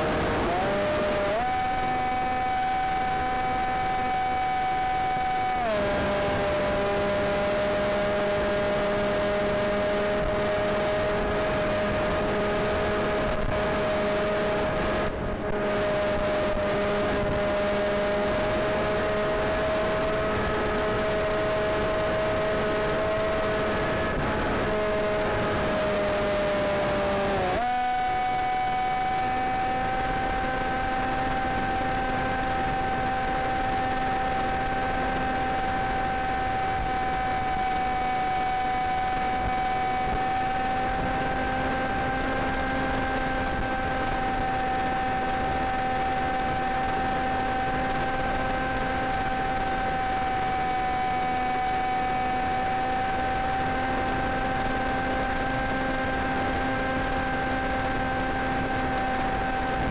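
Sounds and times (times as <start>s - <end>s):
electric motor whine: 0.0s - 59.9s.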